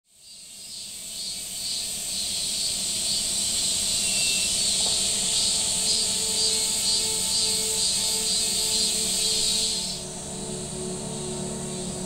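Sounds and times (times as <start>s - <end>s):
night insects trilling: 0.1s - 12.0s
sustained music tones: 4.0s - 12.0s.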